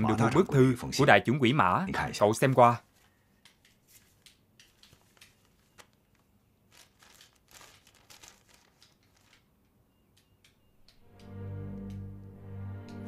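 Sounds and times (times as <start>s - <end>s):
paper rustling and crinkling: 3.9s - 9.6s.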